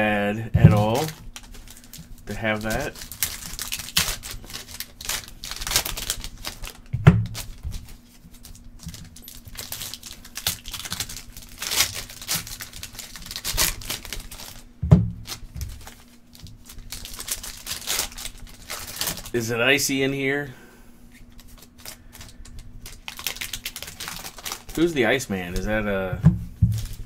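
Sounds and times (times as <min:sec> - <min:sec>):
dull thumps: 0:00.5 - 0:01.0, 0:06.9 - 0:07.4, 0:14.8 - 0:15.8, 0:26.0 - 0:27.0
foil wrapper crinkling: 0:00.6 - 0:20.4, 0:21.1 - 0:27.0.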